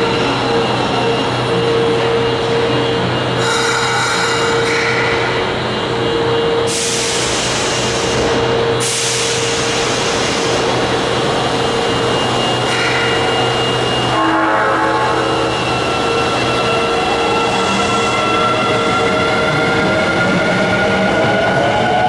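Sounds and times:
subway train rumble and hum: 0.0 - 22.0
loud air hiss: 6.7 - 10.8.

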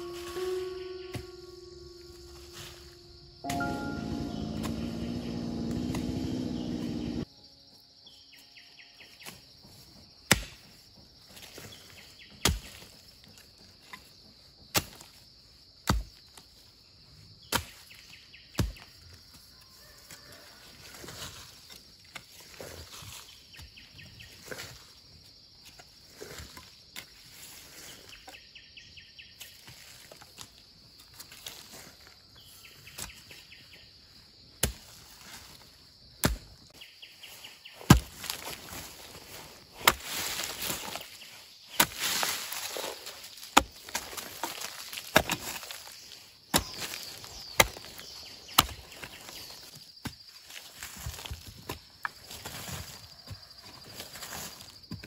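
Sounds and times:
high insect drone: 0.0 - 10.1
hoe chopping into dry dirt: 3.5 - 7.2, 10.3 - 10.8, 36.2 - 36.7, 37.8 - 41.1, 41.8 - 50.2.

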